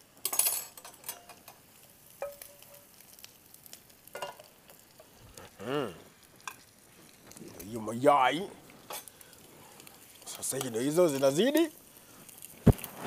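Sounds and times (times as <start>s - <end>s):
faint sizzle from pan: 0.0s - 13.0s
metal spatula tapping pan and plate: 2.2s - 2.9s, 4.1s - 4.5s
person humming: 5.3s - 6.1s.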